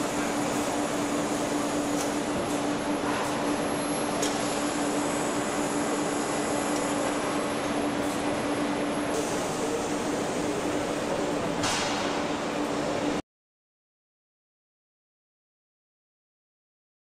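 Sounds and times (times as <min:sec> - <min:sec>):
machinery hum: 0:00.0 - 0:13.2.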